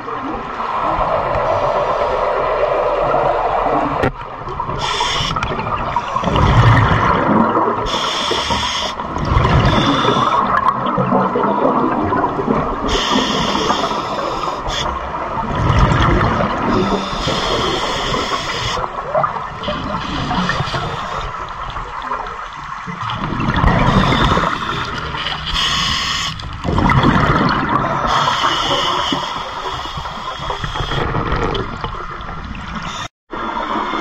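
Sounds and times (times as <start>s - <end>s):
exhaled bubbles rumbling: 0.0s - 8.4s, 9.0s - 33.0s
water noise: 0.0s - 34.0s
regulator inhalation hiss: 4.8s - 6.3s, 7.9s - 9.0s, 9.6s - 10.5s, 12.9s - 15.0s, 16.7s - 18.8s, 19.8s - 21.4s, 25.5s - 26.4s, 28.1s - 31.0s.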